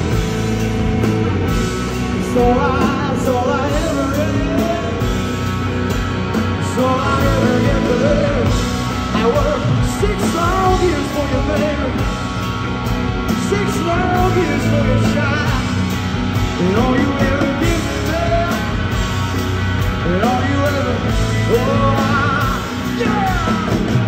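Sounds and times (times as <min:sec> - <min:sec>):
drums: 0:00.0 - 0:24.0
electric guitar: 0:00.0 - 0:24.0
man singing into microphone: 0:02.2 - 0:05.1, 0:06.6 - 0:12.1, 0:13.4 - 0:15.8, 0:16.6 - 0:18.8, 0:20.0 - 0:23.9.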